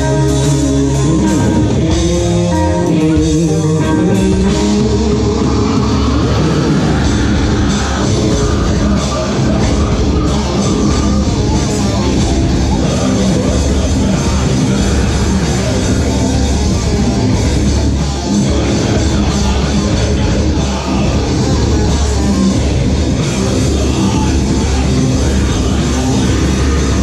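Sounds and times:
bass guitar: 0:00.0 - 0:27.0
drum kit: 0:00.0 - 0:27.0
electric guitar: 0:00.0 - 0:27.0
person singing into microphone: 0:00.0 - 0:27.0.

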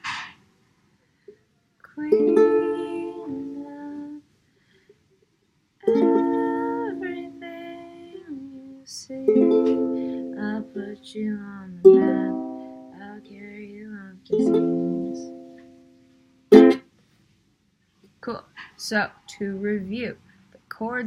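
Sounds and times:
ukulele chords ringing: 0:02.1 - 0:03.8, 0:05.8 - 0:08.2, 0:09.2 - 0:13.7, 0:14.3 - 0:16.8.

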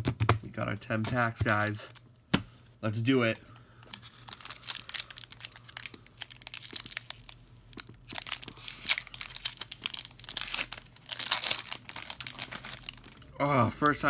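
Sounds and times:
foil wrapper crinkling and tearing: 0:03.5 - 0:14.0.

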